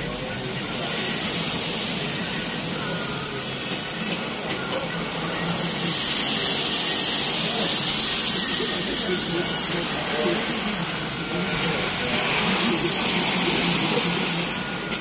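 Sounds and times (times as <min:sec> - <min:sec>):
air dryer blowing: 0:06.1 - 0:15.0.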